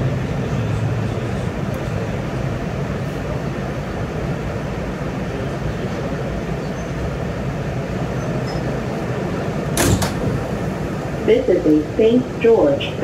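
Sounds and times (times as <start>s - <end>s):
train wheels rumbling on rail: 0.0s - 13.0s
sharp knock: 9.8s - 10.4s.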